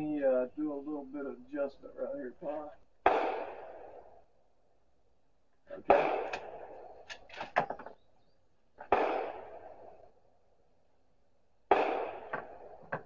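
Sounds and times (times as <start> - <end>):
rifle shot: 3.0 - 4.2, 5.9 - 7.8, 8.8 - 10.1, 11.7 - 13.0.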